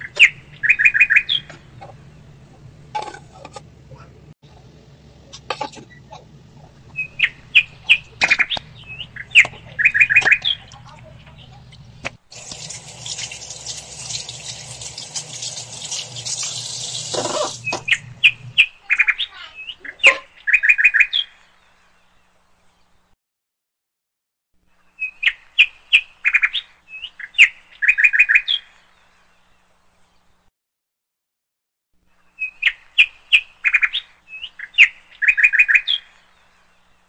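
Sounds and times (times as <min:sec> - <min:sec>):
small birds chirping: 0:00.0 - 0:02.4, 0:05.8 - 0:23.0
steady hiss: 0:12.3 - 0:18.5.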